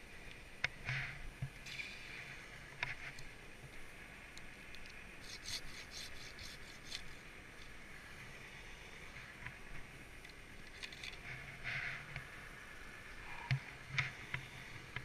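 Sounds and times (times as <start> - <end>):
gear scraping against bark: 5.2 - 7.2.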